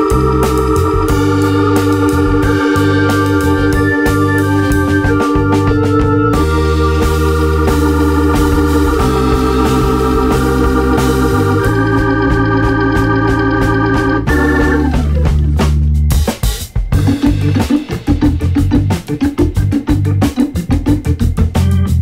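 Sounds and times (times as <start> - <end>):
bass line: 0.0 - 22.0
sustained organ chords: 0.0 - 22.0.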